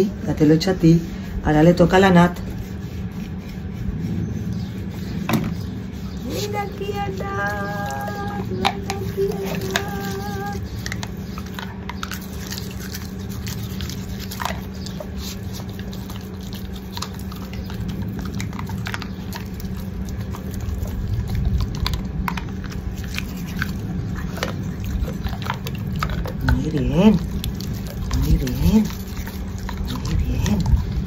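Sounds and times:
dog chewing and licking: 0.3 - 31.0
toothbrush clicking on teeth: 6.3 - 31.0.

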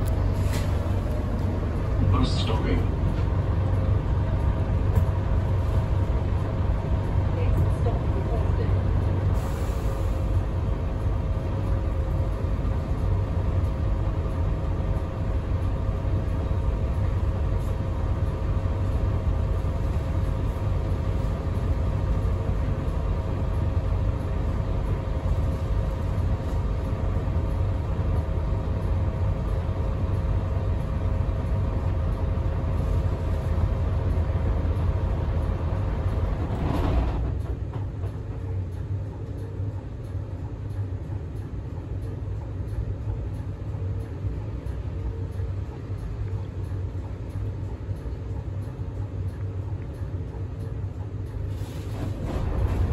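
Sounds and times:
steady whine: 0.0 - 51.5
bus drivetrain rumble: 0.0 - 52.9.

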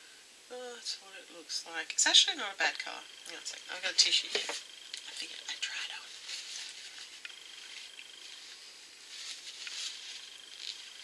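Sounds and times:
tissue rustling on lips: 5.9 - 11.0.

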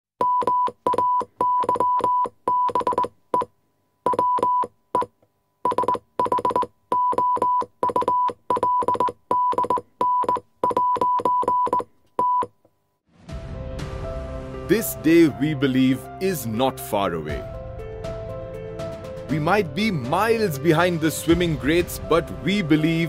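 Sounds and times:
short clicking beeps: 0.2 - 3.5.

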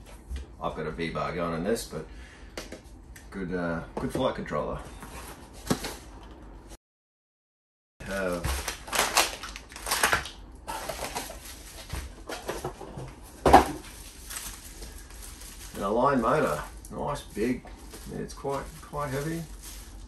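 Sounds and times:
plastic bags crinkling: 8.0 - 20.0.

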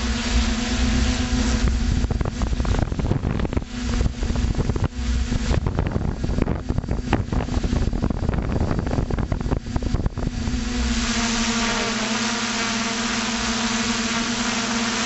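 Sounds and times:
wind buffeting microphone: 0.0 - 12.0
motor and propellers humming: 0.0 - 15.0.

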